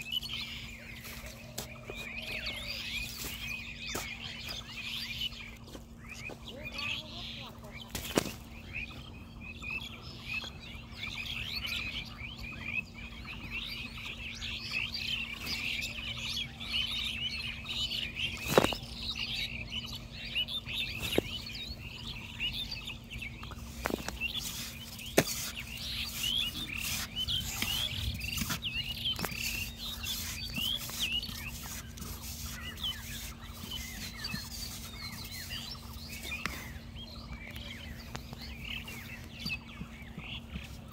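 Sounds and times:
small birds chirping: 0.0 - 40.9
hoe chopping into clay soil: 25.0 - 25.6.

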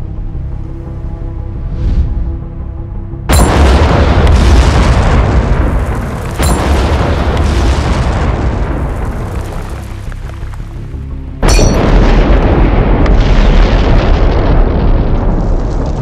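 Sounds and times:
dark music: 0.0 - 16.0
heavy boom: 3.3 - 9.9, 11.4 - 16.0
stone breaking apart: 3.3 - 10.7, 11.4 - 12.1.

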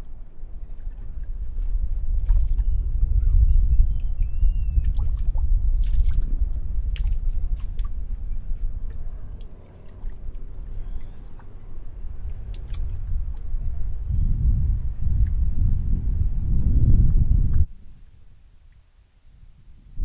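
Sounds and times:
water splashing and sloshing: 0.0 - 2.8, 4.8 - 13.5
strong low rumble: 0.0 - 18.3
water drips: 3.8 - 13.4.

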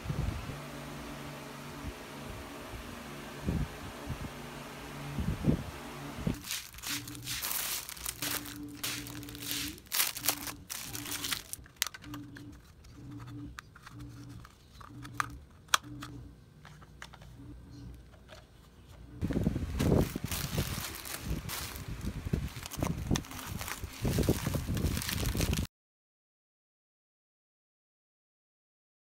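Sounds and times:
plastic bags crinkling: 6.4 - 12.2, 19.2 - 25.7
plastic parts clicking: 7.5 - 17.3.

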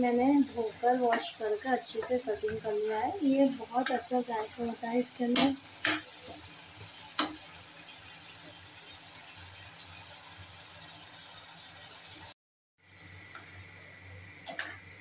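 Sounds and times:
sauce sizzling in a frying pan: 0.0 - 15.0
metal spatula clicking on pan: 5.3 - 6.1.

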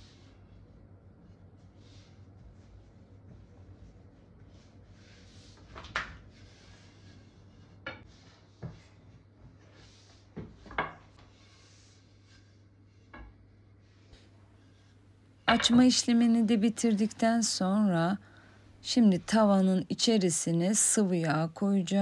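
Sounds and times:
rolling pin rolling dough: 0.0 - 14.9.

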